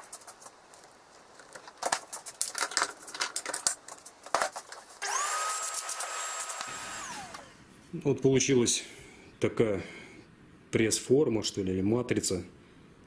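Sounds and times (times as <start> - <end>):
knocks and clatter of handling: 0.0 - 5.0
shop vacuum whining: 5.0 - 7.6.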